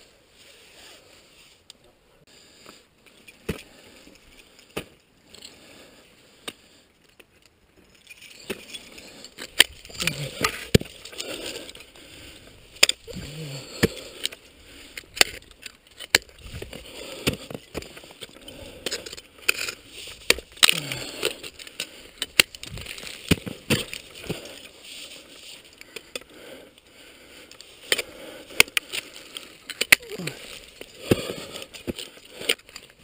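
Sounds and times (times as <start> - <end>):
ice crunching and scraping: 6.6 - 33.0
ice axe striking ice: 16.0 - 18.1, 18.8 - 24.6, 27.9 - 32.7.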